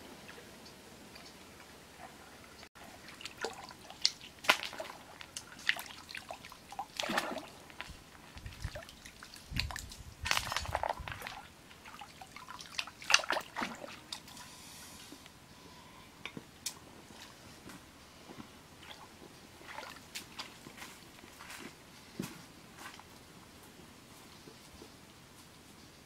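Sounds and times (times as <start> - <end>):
water dripping: 2.4 - 14.4
hands splashing in shallow water: 3.1 - 14.3.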